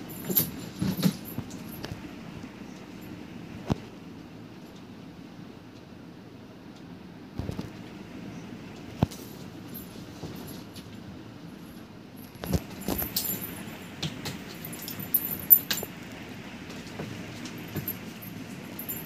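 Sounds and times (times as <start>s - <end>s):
light metallic jingling: 0.0s - 2.2s, 9.2s - 16.1s, 16.8s - 19.0s.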